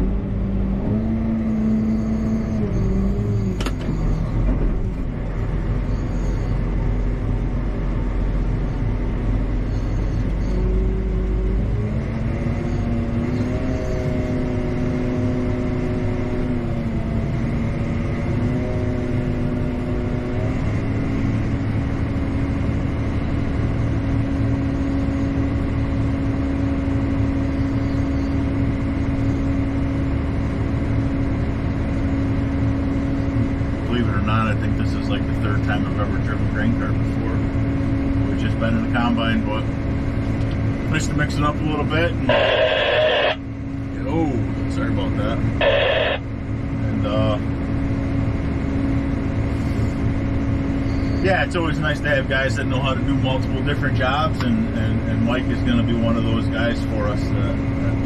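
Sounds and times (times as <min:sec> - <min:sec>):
tractor engine rumbling: 0:00.0 - 0:58.0.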